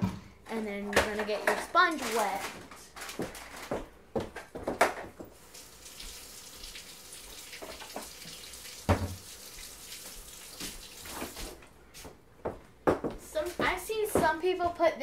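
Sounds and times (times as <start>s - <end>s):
faucet running into metal sink: 5.4s - 11.6s.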